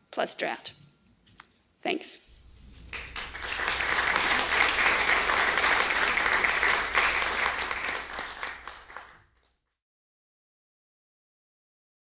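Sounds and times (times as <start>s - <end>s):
audience applauding: 2.4s - 9.5s.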